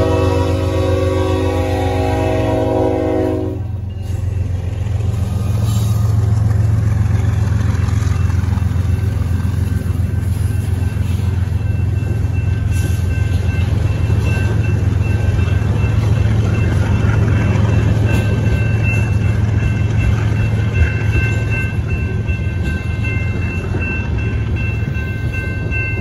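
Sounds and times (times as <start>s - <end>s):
train horn: 0.0s - 3.9s
locomotive engine drone: 0.0s - 26.0s.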